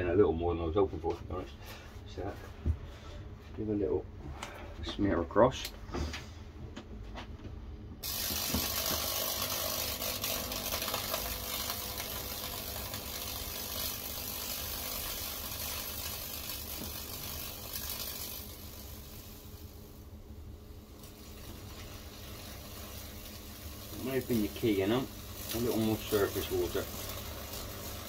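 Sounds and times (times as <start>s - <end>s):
steady electrical hum: 0.0s - 28.0s
electrical arc crackling buzz: 8.0s - 28.0s.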